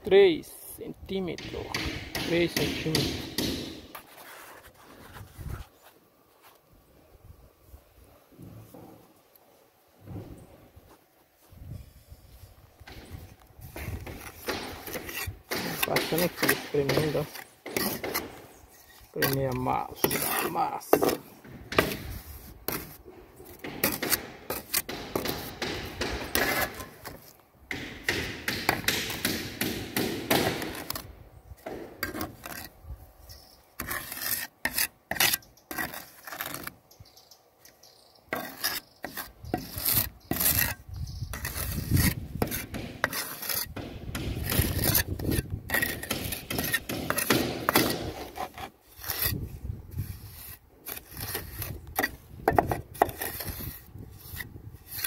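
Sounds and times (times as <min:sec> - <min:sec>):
trowel scraping mortar: 0:03.8 - 0:05.9, 0:13.1 - 0:27.4, 0:30.3 - 0:31.1, 0:32.0 - 0:36.8, 0:38.3 - 0:55.0.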